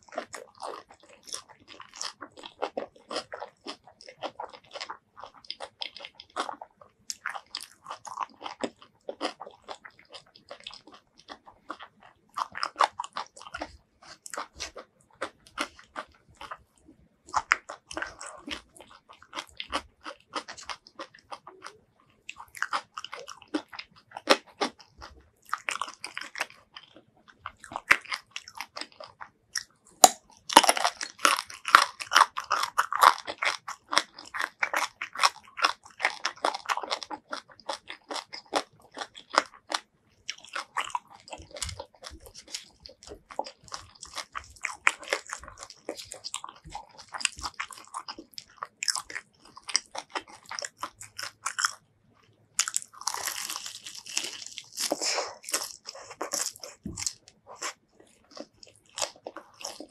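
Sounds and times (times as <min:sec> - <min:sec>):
person chewing and crunching food: 0:00.0 - 0:59.9.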